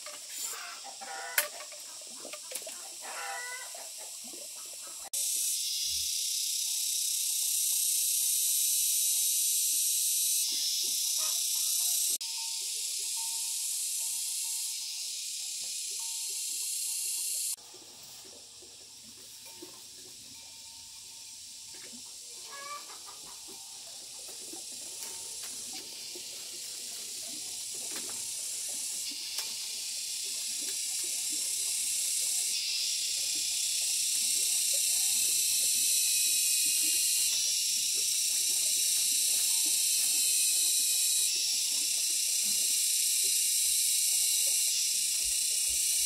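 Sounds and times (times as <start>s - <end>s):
bamboo strips clicking: 0.0s - 2.8s
high-pitched hiss: 0.0s - 46.0s.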